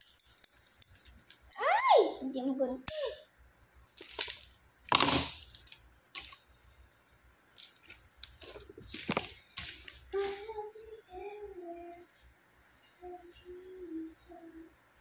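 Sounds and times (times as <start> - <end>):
rustling of artificial tree branches: 3.9 - 13.4.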